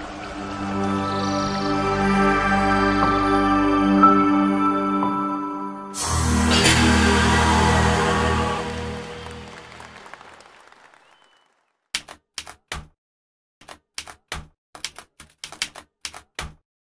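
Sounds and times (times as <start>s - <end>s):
outro music: 0.0s - 10.4s
typewriter key strikes: 13.6s - 16.6s.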